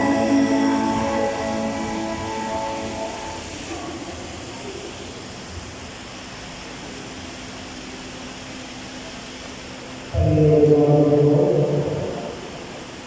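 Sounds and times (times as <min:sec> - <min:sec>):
chanted singing: 0:00.0 - 0:03.6
low room noise: 0:00.0 - 0:13.0.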